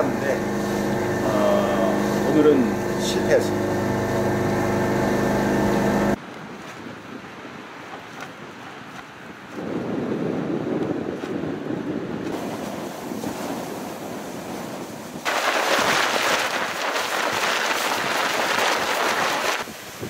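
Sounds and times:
wind buffeting microphone: 0.0s - 20.0s
tent fabric flapping: 6.2s - 19.8s
hissing sandstorm gust: 11.9s - 20.0s.

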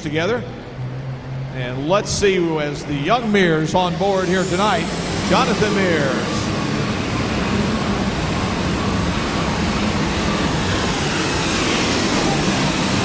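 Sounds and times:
tractor diesel engine roaring: 0.0s - 13.0s.

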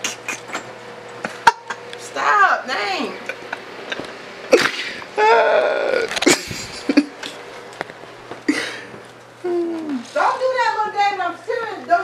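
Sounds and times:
person breathy vocal bursts: 4.5s - 6.1s
person wailing: 4.6s - 7.0s, 9.4s - 10.1s.

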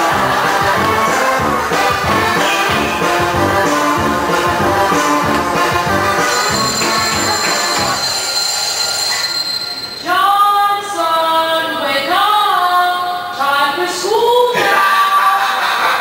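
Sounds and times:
dance music over sound system: 0.0s - 8.0s
high sliding melody line: 0.0s - 10.3s.

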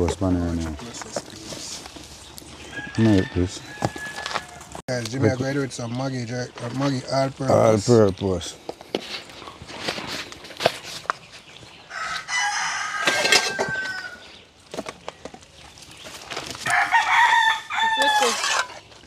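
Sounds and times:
rooster crowing: 2.7s - 4.8s, 11.9s - 14.3s, 16.6s - 18.4s.

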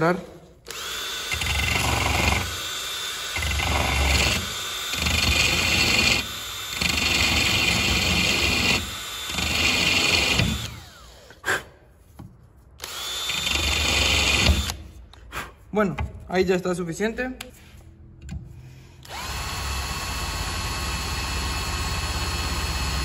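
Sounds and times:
cordless drill grinding plastic: 0.6s - 11.3s, 12.8s - 14.8s, 19.0s - 23.0s.

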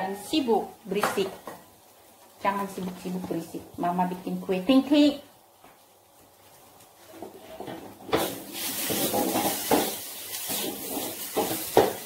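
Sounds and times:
wooden spatula scraping metal wok: 7.0s - 12.0s.

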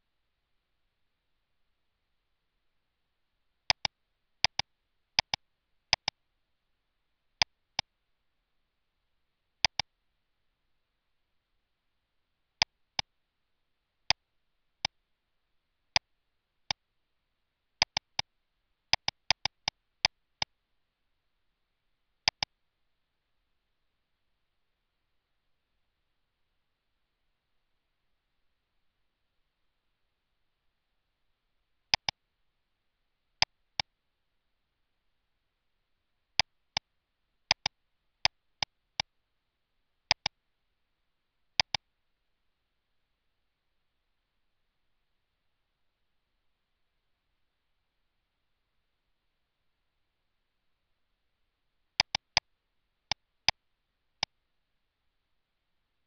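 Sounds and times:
mouse button clicks: 3.7s - 6.2s, 9.6s - 9.9s, 17.8s - 18.3s, 18.9s - 19.8s, 22.3s - 22.5s, 31.9s - 32.2s, 37.5s - 37.8s, 40.1s - 40.4s, 41.6s - 41.8s, 52.0s - 52.4s.

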